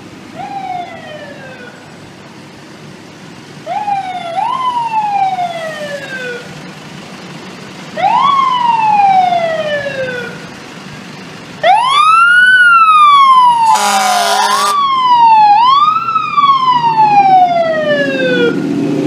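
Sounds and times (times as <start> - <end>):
fire engine siren wailing: 0.3 - 2.0, 3.6 - 6.6, 7.9 - 10.6, 11.6 - 19.0
loud horn blast: 13.6 - 14.8.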